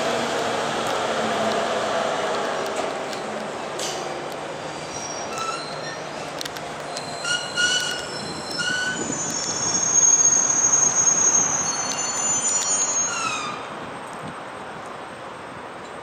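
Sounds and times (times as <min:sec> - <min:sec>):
high-pitched brake squeal: 0:04.7 - 0:06.2, 0:06.9 - 0:13.7
electric train braking: 0:06.9 - 0:13.7.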